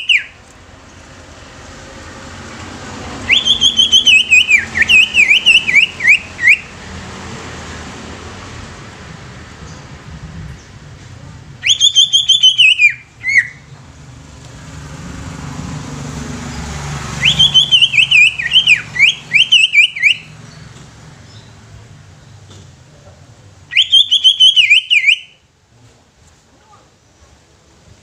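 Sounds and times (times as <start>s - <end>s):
bird singing chattering whistles: 0.0s - 0.4s, 3.3s - 6.7s, 11.6s - 13.7s, 17.2s - 20.6s, 23.7s - 25.4s.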